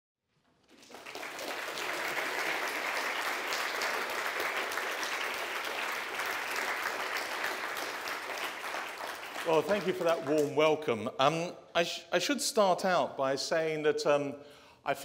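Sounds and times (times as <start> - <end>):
audience applauding: 0.5 - 10.7.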